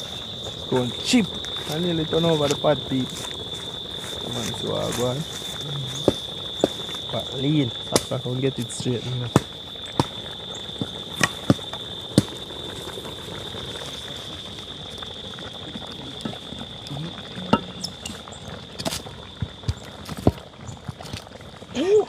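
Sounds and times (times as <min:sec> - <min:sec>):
insect drone: 0:00.0 - 0:22.0
pot of food bubbling: 0:00.0 - 0:22.0.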